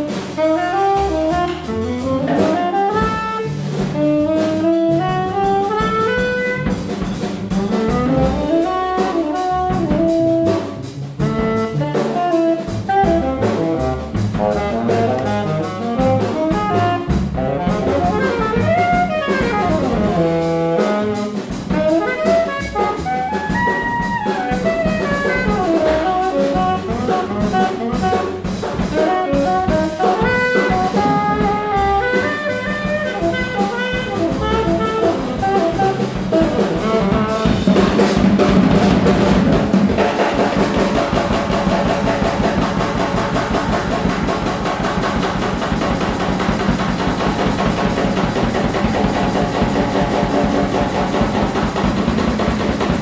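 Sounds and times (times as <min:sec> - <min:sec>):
busy drums: 0:00.0 - 0:53.0
walking bass line: 0:00.0 - 0:53.0
saxophone runs: 0:17.7 - 0:39.8.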